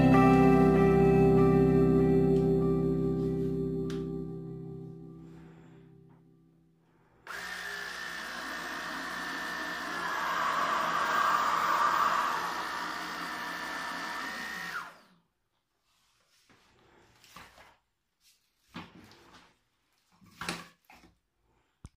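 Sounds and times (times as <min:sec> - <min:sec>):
vacuum cleaner motor whining: 0:07.3 - 0:15.2.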